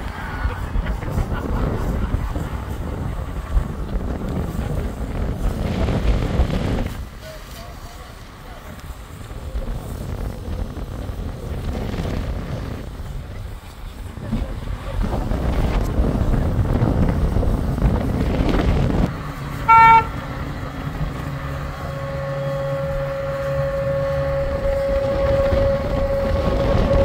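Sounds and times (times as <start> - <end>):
rushing noise: 0.0 - 27.0
tractor engine hum: 0.0 - 27.0
steady higher tone: 19.1 - 27.0
horn toot: 19.6 - 20.6, 21.2 - 27.0.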